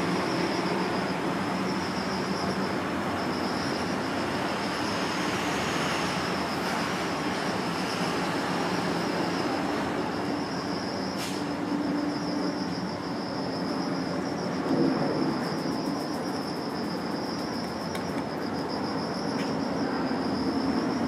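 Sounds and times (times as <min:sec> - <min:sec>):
insects trilling: 0:00.0 - 0:21.0
sharp high-pitched hiss: 0:03.4 - 0:13.9.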